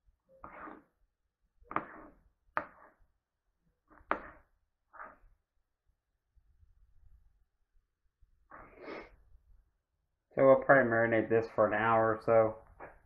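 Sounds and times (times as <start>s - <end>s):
knife slicing on cutting board: 0.4s - 0.8s, 1.7s - 3.0s.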